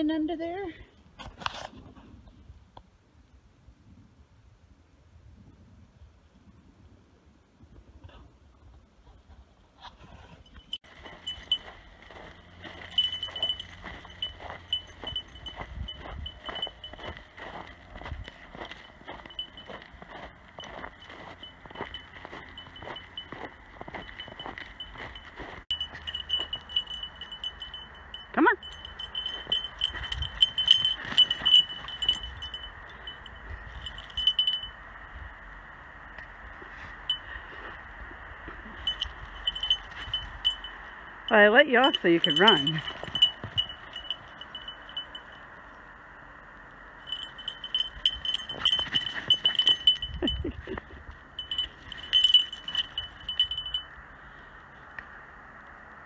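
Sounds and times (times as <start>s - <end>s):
dog collar jingling: 10.4s - 34.8s, 38.8s - 45.4s, 47.0s - 53.9s.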